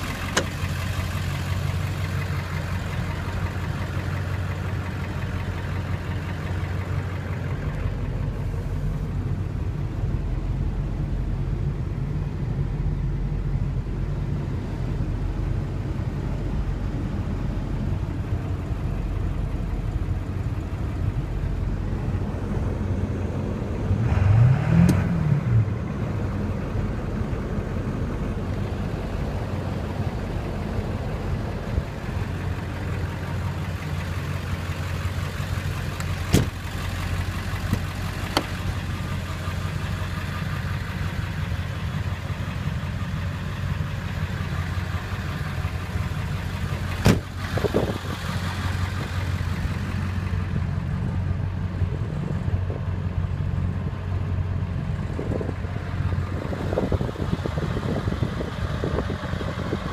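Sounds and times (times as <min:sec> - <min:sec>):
diesel engine idling: 0:00.0 - 0:59.9
sharp clicks and knocks: 0:00.2 - 0:00.6, 0:37.6 - 0:38.6.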